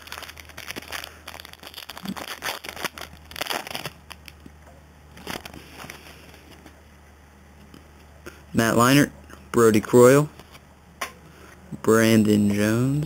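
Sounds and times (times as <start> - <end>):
foil wrapper crinkling and tearing: 0.0 - 4.5, 5.1 - 6.5.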